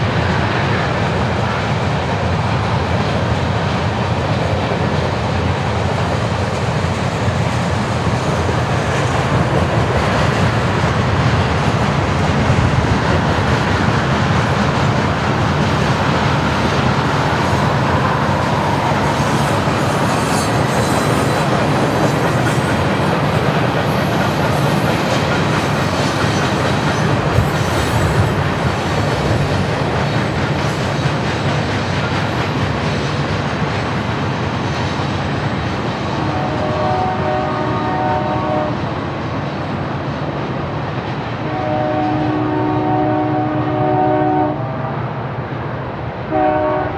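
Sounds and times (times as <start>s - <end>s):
freight train rolling past: 0.0s - 46.9s.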